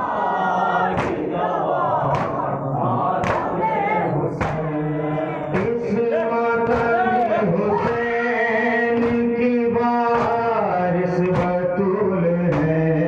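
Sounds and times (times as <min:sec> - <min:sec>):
men chanting a lament: 0:00.0 - 0:13.0
chest-beating slaps: 0:00.9 - 0:01.3, 0:02.0 - 0:02.6, 0:03.2 - 0:03.6, 0:04.4 - 0:04.8, 0:08.9 - 0:09.4, 0:10.0 - 0:10.6, 0:11.2 - 0:11.6.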